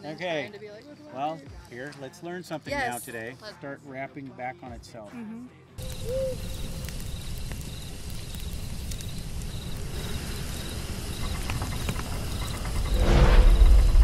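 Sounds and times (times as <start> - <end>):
campfire crackling: 0.0 - 3.4, 5.8 - 14.0
crickets chirping: 5.8 - 14.0
low rumble: 9.2 - 14.0.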